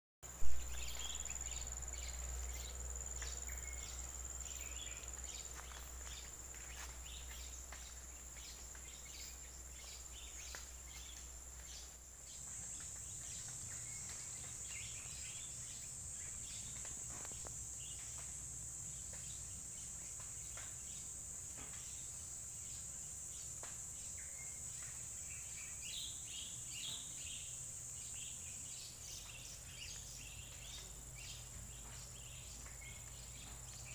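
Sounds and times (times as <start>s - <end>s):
bird chirps: 0.3s - 18.0s
high-pitched insect drone: 0.4s - 18.3s.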